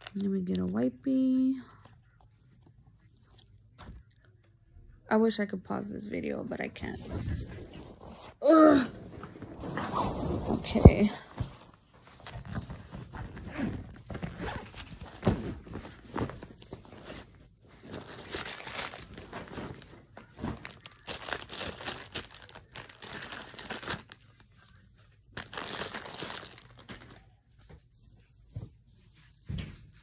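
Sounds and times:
plastic packet crinkling: 18.0 - 24.4, 25.3 - 27.2.

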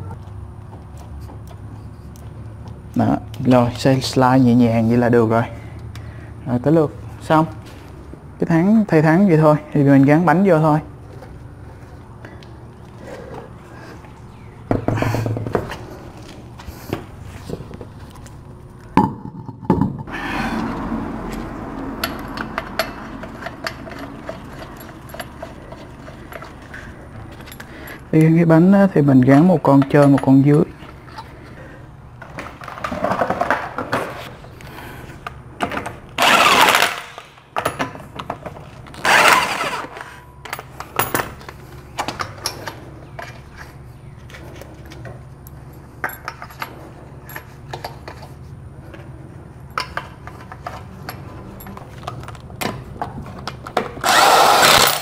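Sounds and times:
metal clinks of lug nuts: 22.0 - 26.5, 46.0 - 48.3
impact wrench spinning lug nuts: 22.0 - 28.0, 36.2 - 37.2, 38.9 - 41.4, 53.8 - 55.0.

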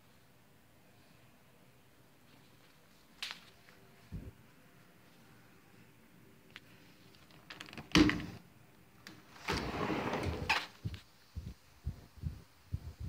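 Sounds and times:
sliding door rolling on track: 9.4 - 10.5
soft low thumps: 10.8 - 13.0.

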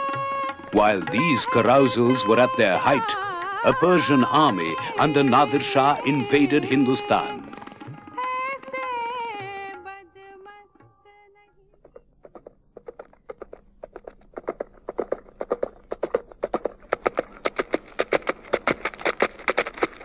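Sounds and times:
horses galloping: 11.7 - 20.0.

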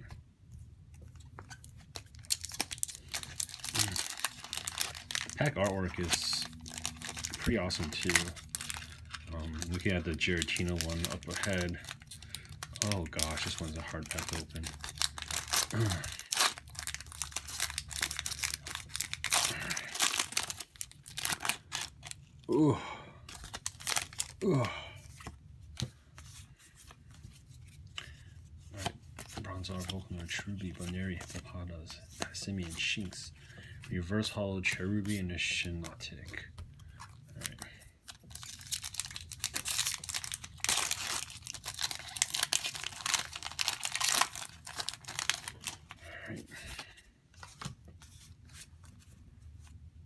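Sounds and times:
foil wrapper crinkling and tearing: 1.6 - 22.5, 23.3 - 24.6, 37.4 - 46.0.

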